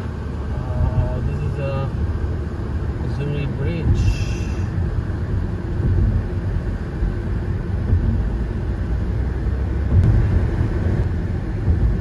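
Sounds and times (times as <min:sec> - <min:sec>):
car cabin road noise: 0:00.0 - 0:12.0.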